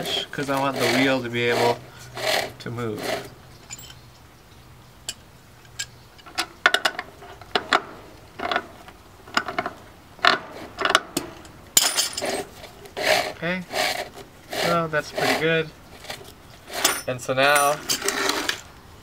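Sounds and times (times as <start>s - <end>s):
wrench clinking against nut: 3.6s - 4.1s, 16.8s - 18.0s.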